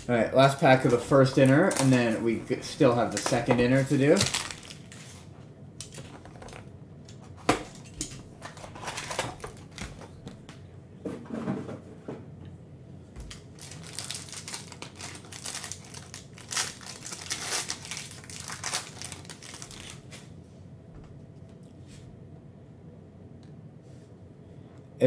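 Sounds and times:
plastic wrapper crinkling and tearing: 0.4 - 5.2, 13.3 - 20.2.

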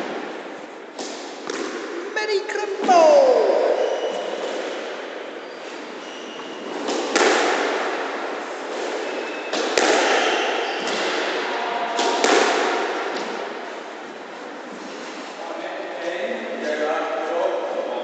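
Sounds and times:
squash ball cracks echoing: 0.0 - 2.2, 6.7 - 13.6.

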